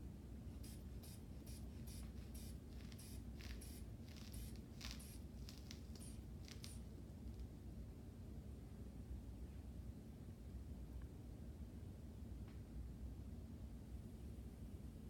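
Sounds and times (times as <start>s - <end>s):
hand bulb airy puffs: 0.6s - 6.8s.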